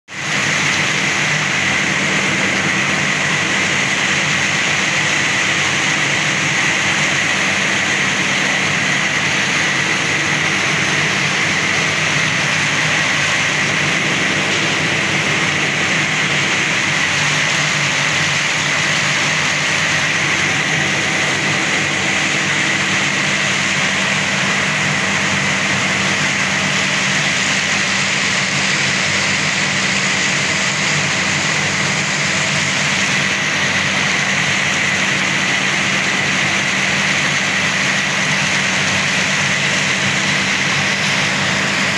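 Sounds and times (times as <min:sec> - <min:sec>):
circular loom running: 0:00.2 - 0:41.9.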